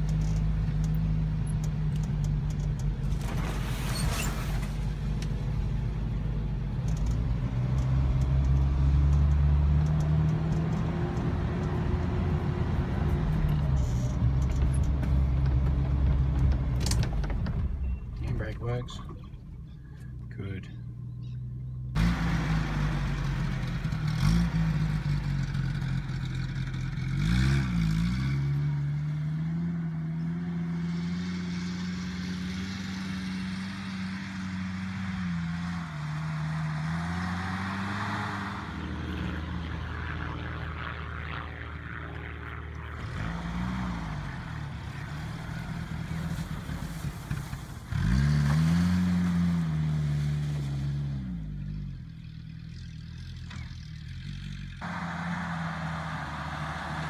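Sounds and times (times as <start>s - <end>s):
off-road vehicle engine accelerating: 0.0s - 57.0s.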